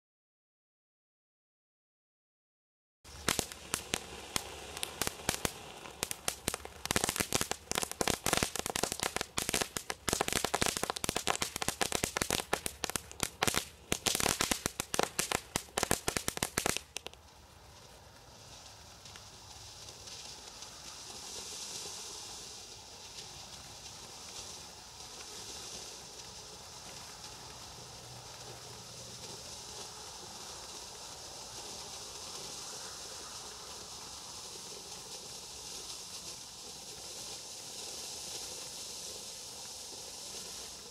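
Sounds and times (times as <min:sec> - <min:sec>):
firework fountain crackling: 0:03.1 - 0:40.9
hiss of spraying sparks: 0:03.1 - 0:40.9.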